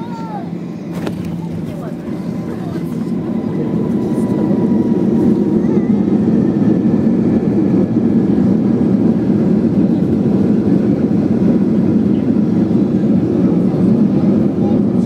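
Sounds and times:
airliner cabin rumble: 0.0s - 15.0s.

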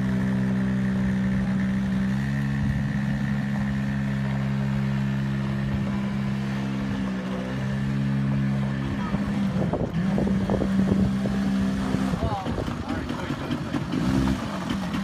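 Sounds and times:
quad bike engine running: 0.0s - 15.0s.

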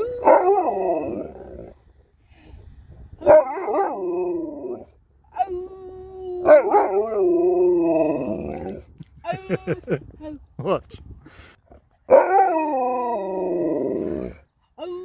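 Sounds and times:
dog howling: 0.0s - 1.7s, 3.2s - 5.6s, 6.3s - 8.8s, 12.1s - 15.0s.

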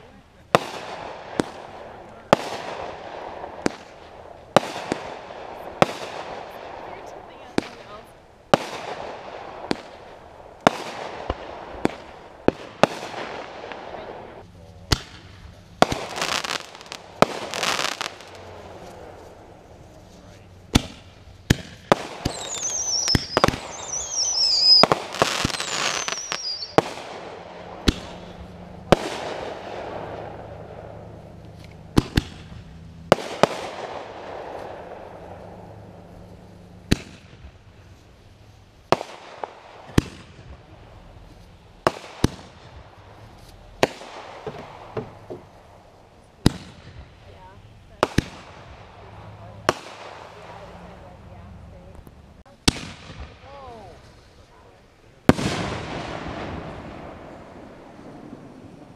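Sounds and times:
fireworks bursting with bangs: 0.0s - 58.9s
falling firework whistles: 21.9s - 27.0s.

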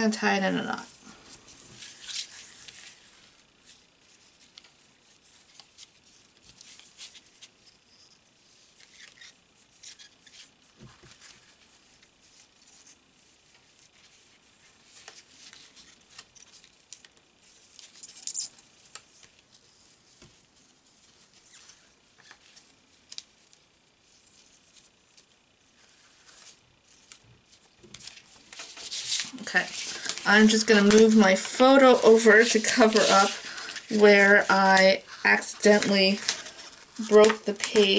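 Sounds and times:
ribbon rustling and scraping: 0.0s - 37.9s
cardstock brushing: 18.9s - 37.9s.

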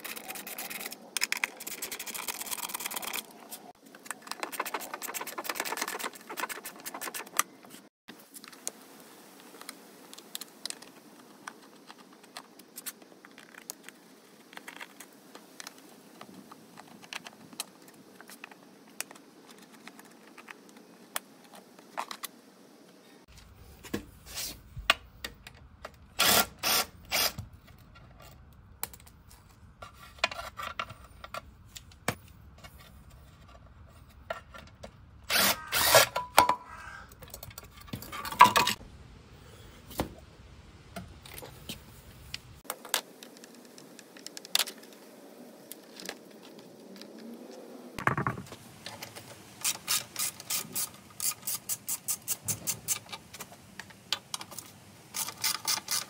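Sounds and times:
loud tool noise bursts: 26.2s - 27.4s, 35.3s - 36.2s.

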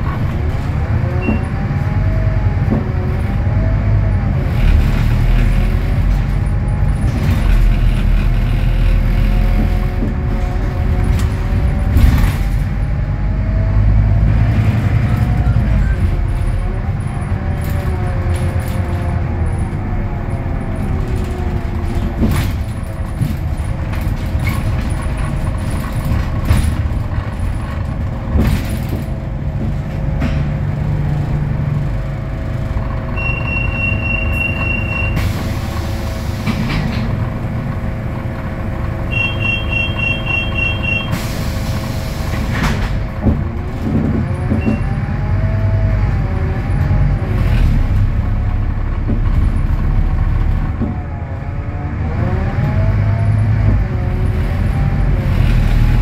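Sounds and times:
bus diesel engine: 0.0s - 56.0s
short beeping: 33.2s - 35.2s, 39.1s - 41.2s.

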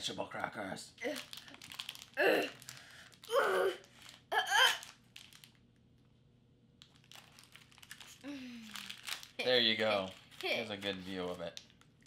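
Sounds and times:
plastic wrapper crinkling: 1.0s - 6.1s, 6.8s - 12.0s
child grunting with effort: 2.2s - 2.6s, 3.3s - 4.8s.

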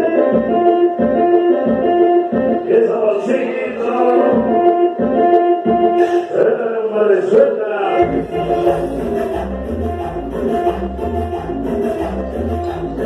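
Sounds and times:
cumbia music over sound system: 0.0s - 13.0s
person singing: 2.2s - 13.0s
held keyboard tones: 3.8s - 6.1s
bass beat: 4.1s - 6.1s, 8.0s - 13.0s.

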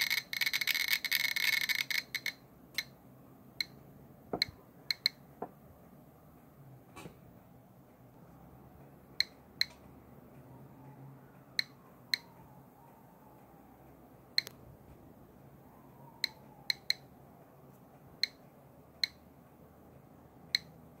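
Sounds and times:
geiger counter clicking: 0.0s - 3.0s, 3.6s - 3.8s, 4.4s - 5.3s, 9.2s - 9.9s, 11.5s - 13.6s, 14.3s - 14.6s, 16.2s - 17.1s, 18.1s - 19.3s, 20.4s - 21.0s.

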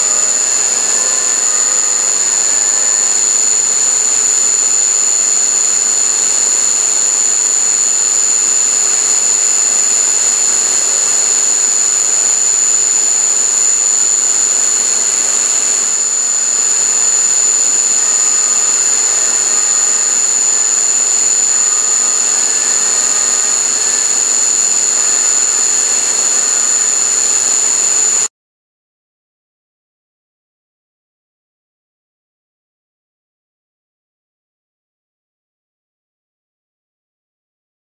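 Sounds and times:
metal cutting noise: 0.0s - 6.0s, 6.8s - 28.3s
mill spindle whining: 0.0s - 28.3s.

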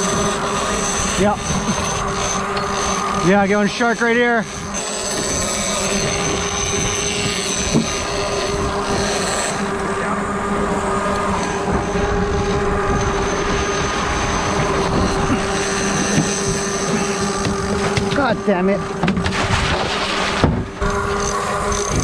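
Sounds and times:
boat engine humming: 0.0s - 22.0s
water rushing: 16.8s - 21.7s.

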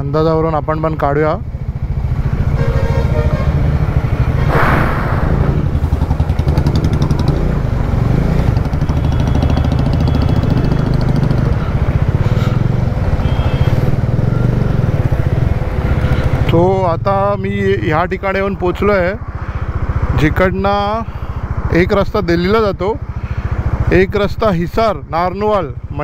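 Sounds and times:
motorcycle engine running: 0.6s - 4.5s, 5.3s - 17.7s
rushing whoosh: 4.3s - 6.7s.

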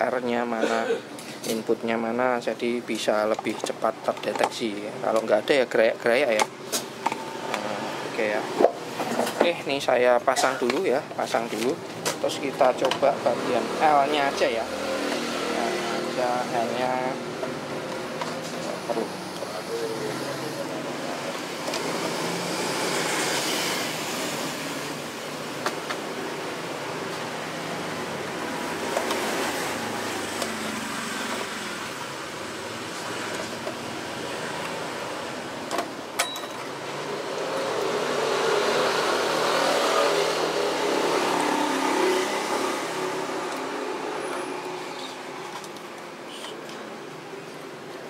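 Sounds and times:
vehicle engine passing by: 13.2s - 17.1s, 37.0s - 45.1s.

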